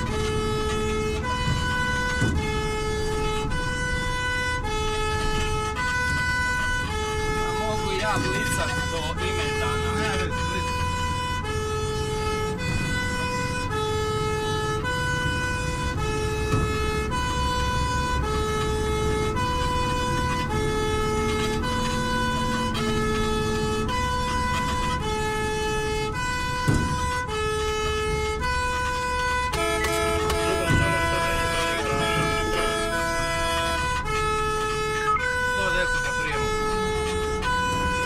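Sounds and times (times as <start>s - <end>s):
low engine rumble: 0.0s - 38.0s
two-tone fire engine siren: 0.0s - 38.0s
pitched tone: 29.5s - 37.2s.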